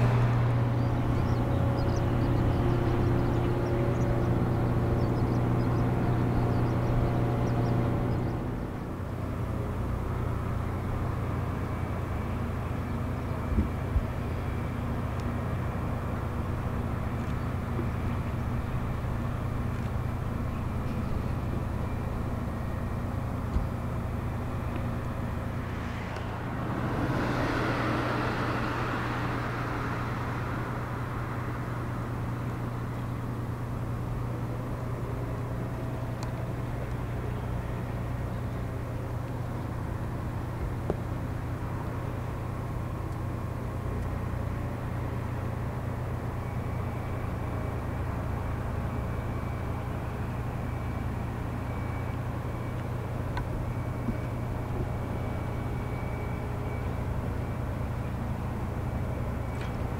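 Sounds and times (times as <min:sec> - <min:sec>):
low machinery hum: 0:00.0 - 0:59.9
wash of noise: 0:24.5 - 0:33.0.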